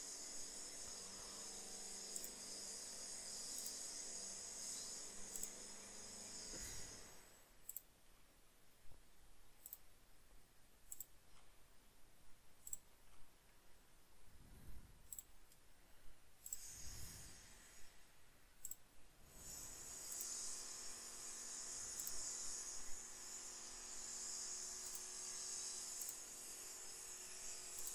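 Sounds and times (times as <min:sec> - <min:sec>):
computer mouse clicks: 0:03.6 - 0:03.8, 0:05.3 - 0:05.6, 0:07.6 - 0:07.9, 0:09.6 - 0:09.9, 0:10.8 - 0:11.5, 0:12.6 - 0:13.3, 0:15.1 - 0:15.7, 0:16.4 - 0:16.7, 0:18.6 - 0:18.9, 0:24.8 - 0:25.1, 0:26.0 - 0:26.2.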